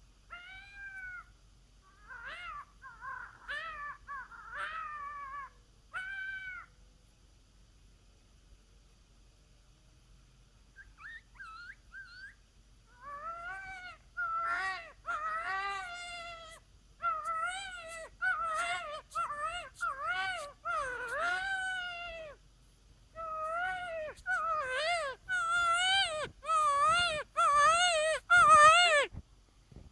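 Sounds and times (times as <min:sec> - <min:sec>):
coyote howler call yips: 0:00.3 - 0:01.3, 0:01.9 - 0:06.7, 0:10.8 - 0:22.4, 0:23.2 - 0:29.2.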